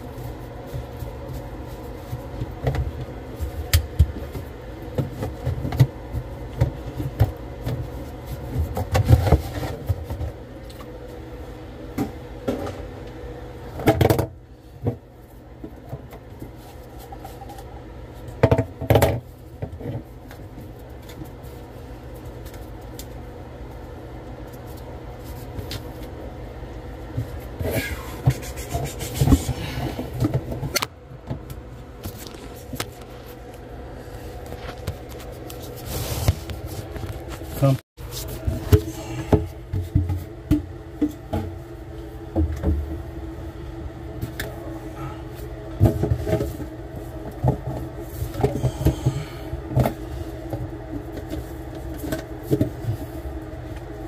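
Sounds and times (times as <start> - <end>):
steady low hum: 0.0 - 54.0
knocks and rubbing: 27.6 - 30.6.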